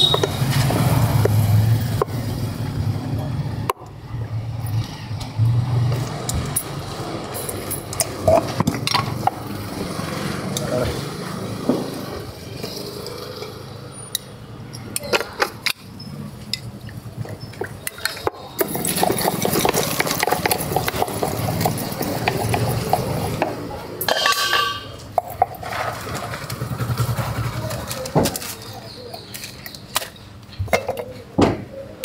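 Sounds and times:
metal spoon clinking against pot: 24.0s - 25.1s.

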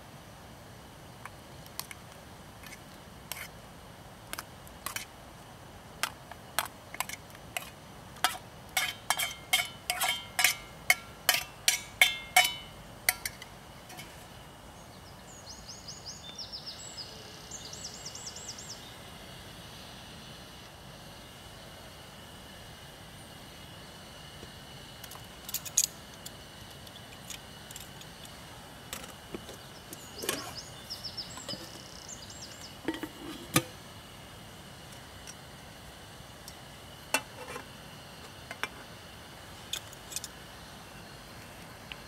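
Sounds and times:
bird chirping: 14.8s - 19.0s, 29.5s - 33.4s.

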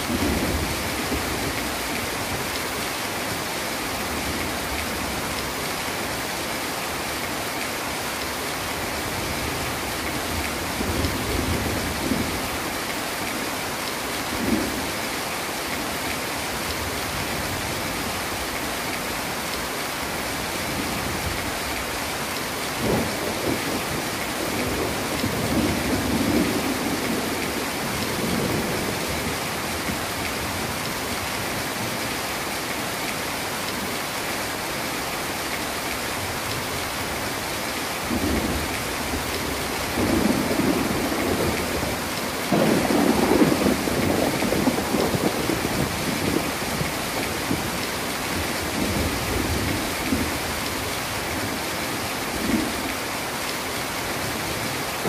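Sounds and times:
heavy rain falling: 0.0s - 55.0s
thunder rumbling: 38.1s - 50.4s.

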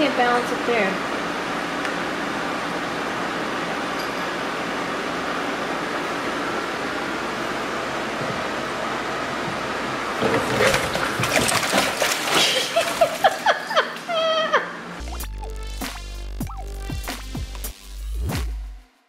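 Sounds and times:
water splashing in fish tank: 10.1s - 13.7s.

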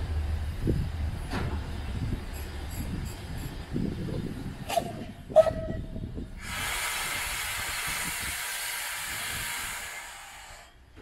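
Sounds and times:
locomotive running rumble: 0.0s - 11.0s
steam hissing: 6.4s - 10.8s.

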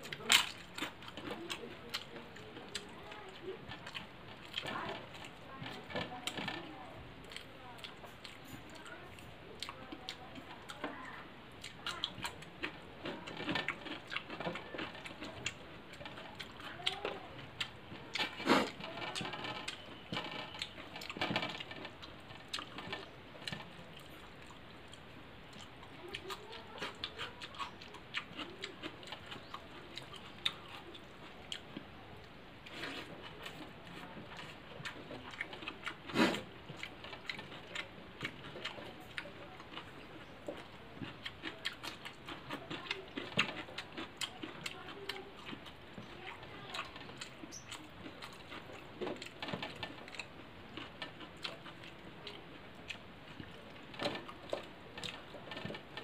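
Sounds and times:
wet chewing and lip smacks: 0.0s - 6.5s, 7.2s - 56.0s.

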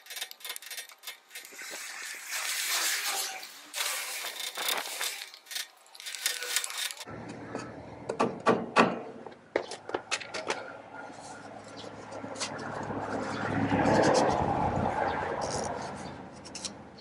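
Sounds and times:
rustling: 0.0s - 7.1s.

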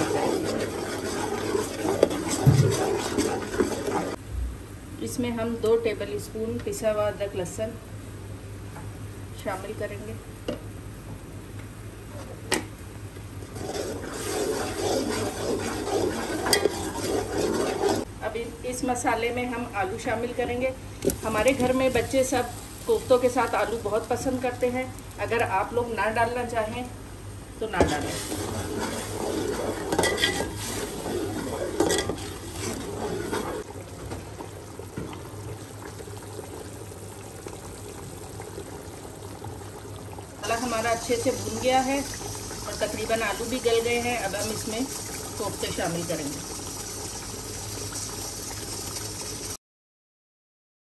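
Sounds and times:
curry bubbling at a simmer: 0.0s - 4.2s, 13.4s - 18.1s, 27.9s - 49.6s
food sizzling in a pot: 0.0s - 4.2s, 13.4s - 18.1s, 21.0s - 26.6s, 27.7s - 49.6s
spoon scraping a pot: 0.0s - 4.2s, 13.5s - 18.0s, 27.9s - 33.6s
low steady hum: 0.0s - 47.3s.

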